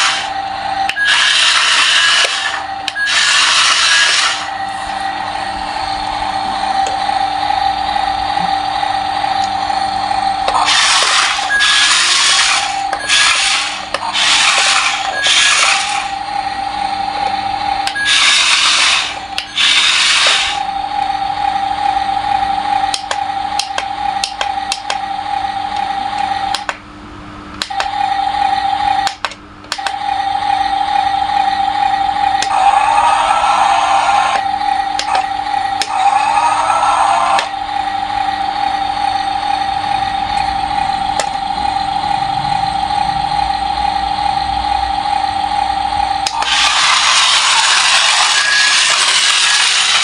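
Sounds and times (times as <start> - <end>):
electronic engine sound effect: 0.0 - 26.6, 29.7 - 50.0
toy truck motors and gears whirring: 0.0 - 26.8, 27.6 - 50.0
clicks: 22.9 - 25.0, 27.5 - 27.9, 29.0 - 30.0.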